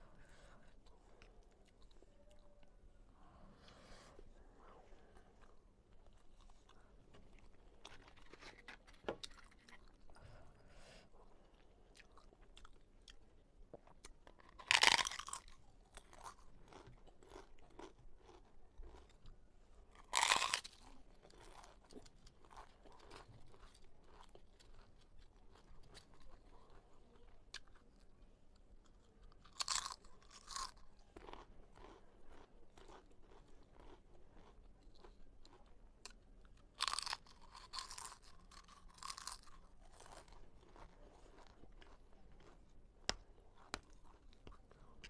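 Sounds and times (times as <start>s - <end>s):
crunchy chewing: 5.0s - 10.2s, 13.8s - 45.0s
loud crackling crunch of bites: 14.4s - 19.0s, 20.0s - 20.8s, 29.5s - 34.5s, 36.8s - 40.8s.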